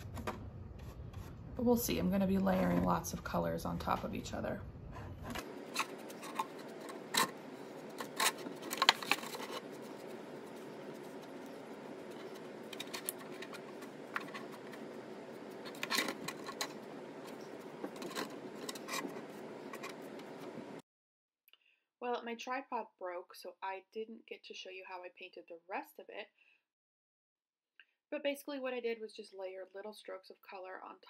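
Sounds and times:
paintbrush scraping on plastic: 5.0 - 20.8.

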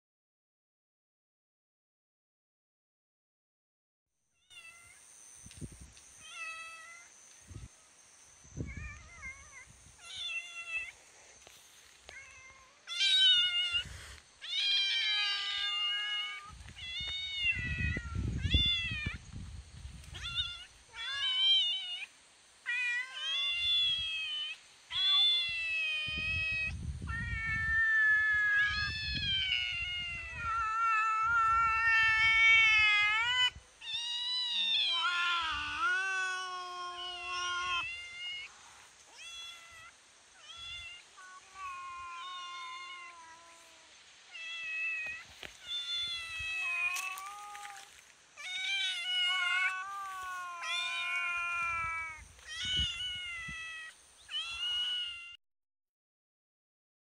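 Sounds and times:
kitten meowing: 20.1 - 22.0, 22.7 - 38.4, 44.4 - 55.4
low drawn-out cat call: 22.7 - 38.5, 39.1 - 55.4.

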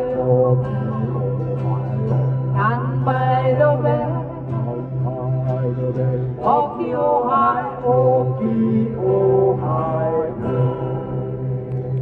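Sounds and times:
acoustic guitars strummed: 0.0 - 12.0
voices singing: 0.0 - 12.0.

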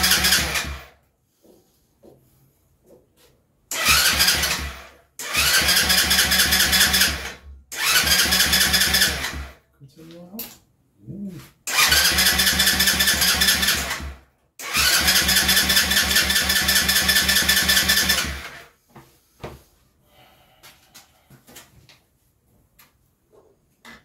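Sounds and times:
small engine cranking: 0.0 - 0.9, 3.7 - 9.6, 11.7 - 18.6
starter motor whine: 3.7 - 9.6, 11.7 - 18.6.

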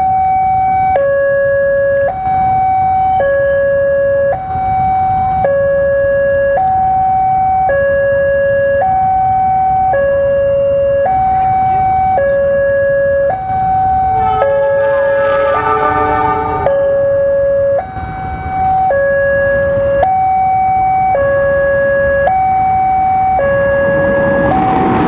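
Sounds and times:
level-crossing two-tone alarm: 0.0 - 25.0
pitched sound: 14.0 - 17.3.

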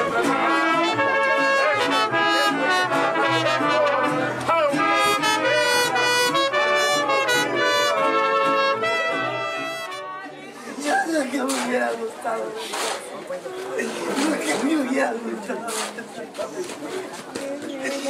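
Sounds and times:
trumpets: 0.0 - 10.5
mariachi band playing: 0.0 - 18.0.

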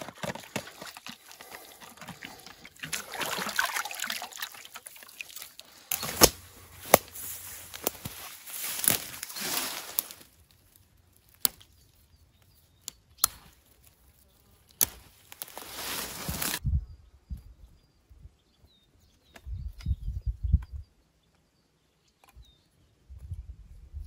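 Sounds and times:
rustling noise: 6.0 - 10.4, 15.0 - 16.6.

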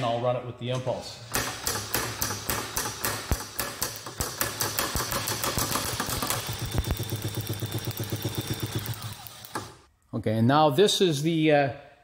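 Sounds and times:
battery drill humming: 5.9 - 9.9
drill whine: 6.2 - 9.8.

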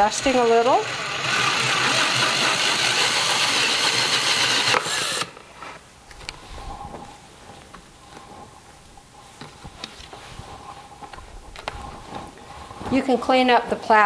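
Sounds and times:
drill grinding through plastic: 0.0 - 5.4
faint handling sounds: 5.4 - 14.0.

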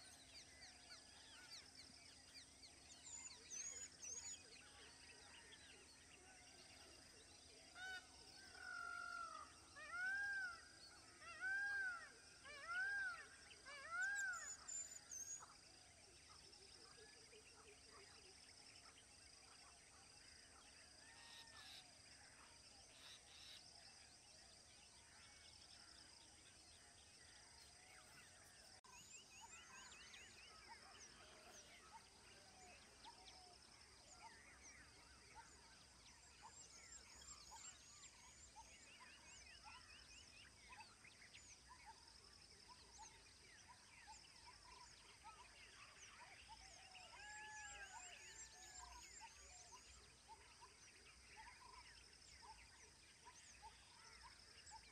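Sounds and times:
birds chirping and trilling: 17.4 - 54.9.

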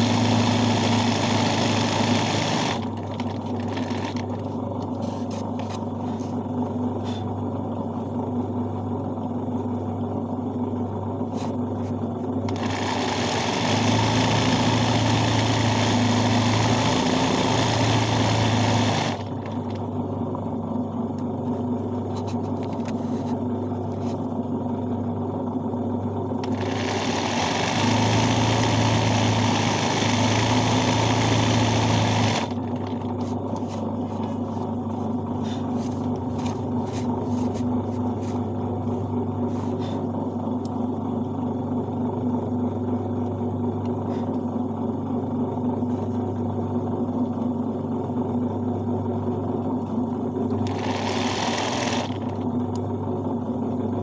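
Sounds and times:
sewing machine stitching: 0.0 - 4.4, 12.5 - 19.8, 26.4 - 33.1, 50.6 - 52.5.

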